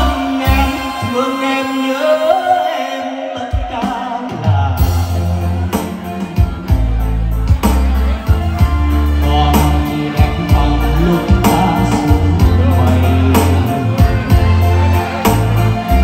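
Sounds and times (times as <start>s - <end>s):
electronic keyboard bass notes: 0.0s - 16.0s
keyboard melody: 0.0s - 16.0s
programmed drum beat: 3.5s - 16.0s.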